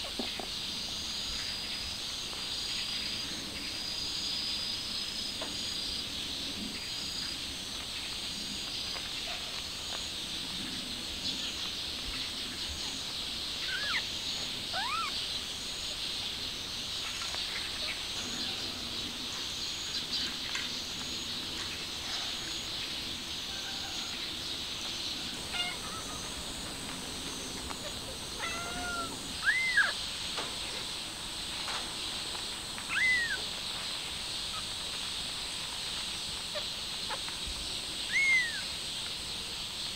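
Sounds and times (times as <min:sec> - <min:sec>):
insects chirring: 0:00.0 - 0:39.9
kittens mewing: 0:14.8 - 0:15.1, 0:25.5 - 0:26.2, 0:27.8 - 0:30.0, 0:32.9 - 0:33.4.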